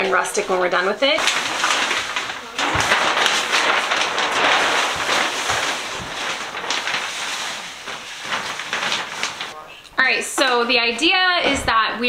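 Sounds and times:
plastic sheeting rustling: 0.0s - 9.6s.

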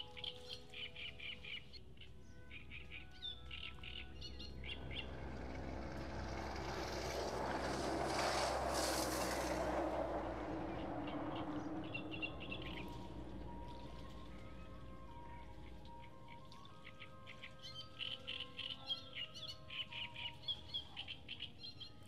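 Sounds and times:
small birds chirping: 0.0s - 5.2s, 10.7s - 22.0s.

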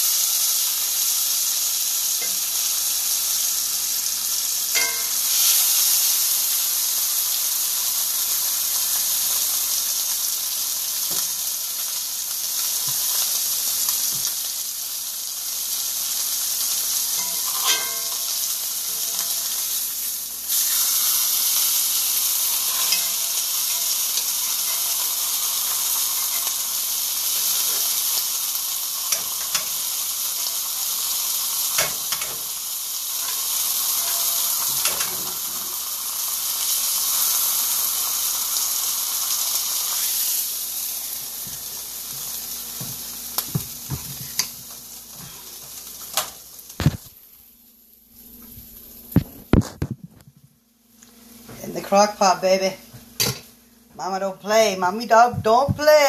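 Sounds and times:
meat sizzling in skillet: 0.0s - 50.0s
metal tongs clicking on pan: 4.8s - 5.2s, 29.1s - 29.8s, 31.7s - 32.5s.

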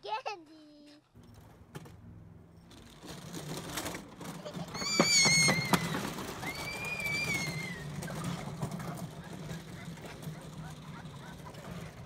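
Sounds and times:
roller coaster car rumbling: 1.2s - 12.0s
wheels clacking: 1.2s - 12.0s
child squealing with delight: 4.5s - 8.2s.

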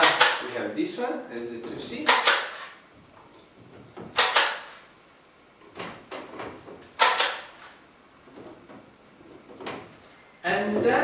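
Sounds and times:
wooden knocks and clunks: 1.6s - 4.7s, 5.6s - 7.6s, 8.2s - 10.0s.

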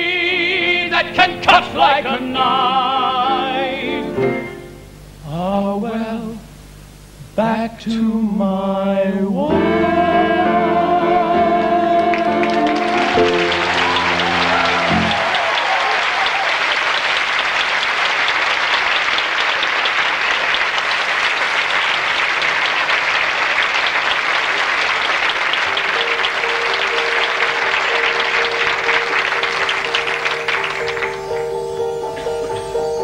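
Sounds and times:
held music notes: 9.4s - 15.3s, 25.7s - 33.0s
audience applauding: 11.6s - 32.8s
music final chord: 25.7s - 33.0s.

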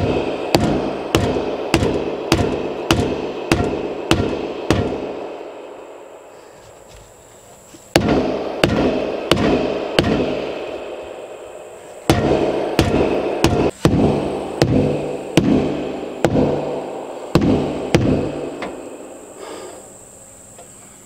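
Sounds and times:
mallet striking plastic pipe: 0.0s - 5.2s, 8.0s - 10.4s, 12.1s - 18.7s.

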